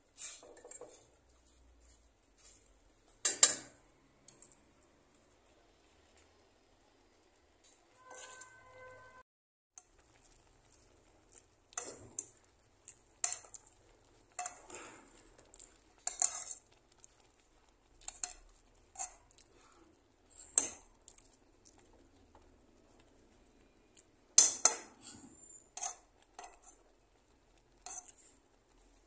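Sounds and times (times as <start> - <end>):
spatula scraping frying pan: 16.0 - 16.7, 18.0 - 19.7, 24.4 - 26.9, 27.8 - 28.4.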